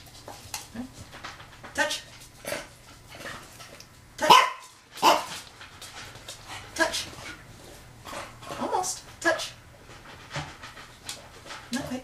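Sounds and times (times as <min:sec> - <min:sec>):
dog barking: 0:04.2 - 0:05.3.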